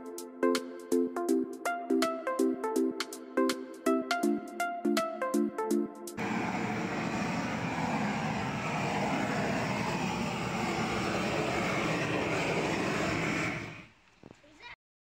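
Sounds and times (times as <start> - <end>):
gas torch rushing: 6.2 - 14.7.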